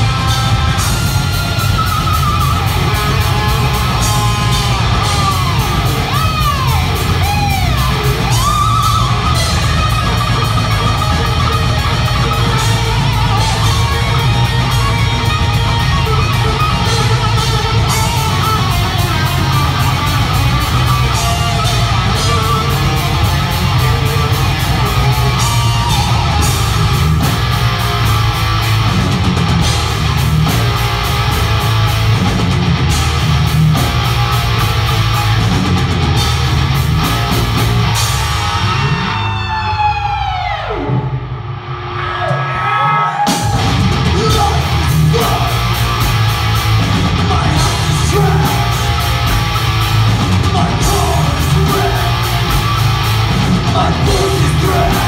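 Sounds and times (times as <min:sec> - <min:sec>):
guitar sliding in pitch: 0:00.0 - 0:41.2
heavy metal band playing live: 0:00.0 - 0:55.0.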